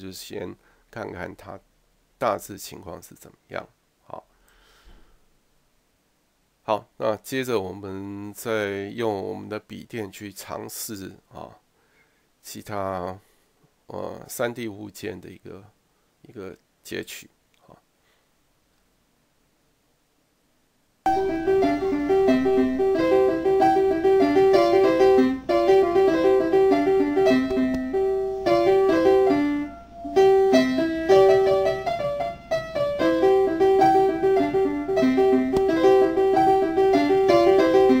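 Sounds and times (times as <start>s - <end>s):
piano music: 21.1s - 38.0s.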